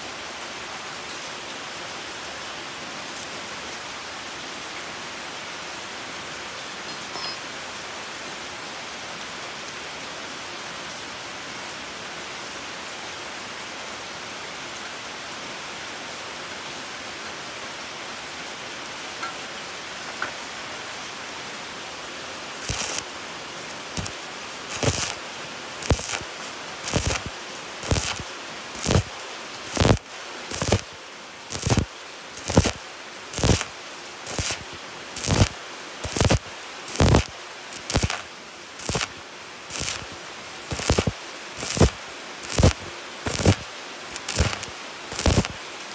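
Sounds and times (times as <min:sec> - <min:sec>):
steady hiss: 0:18.5 - 0:45.9
welding arc crackling: 0:22.6 - 0:23.0, 0:23.7 - 0:25.2, 0:25.8 - 0:45.6.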